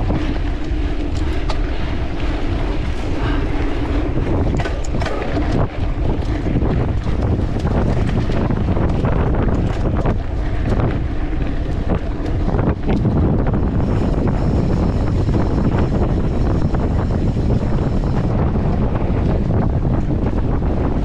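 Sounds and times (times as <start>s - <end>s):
bike and camera mount rattling: 0.0s - 3.0s, 3.7s - 20.5s
wind buffeting microphone: 0.0s - 21.0s.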